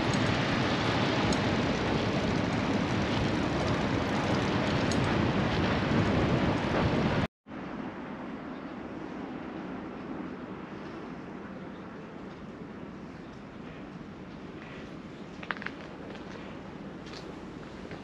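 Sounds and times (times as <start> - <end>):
wind rushing over microphone: 0.0 - 12.9.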